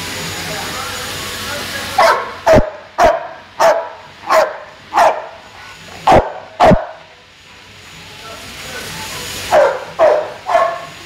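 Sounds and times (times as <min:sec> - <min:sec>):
dog barking: 0:02.0 - 0:05.4, 0:06.0 - 0:07.0, 0:09.5 - 0:10.9.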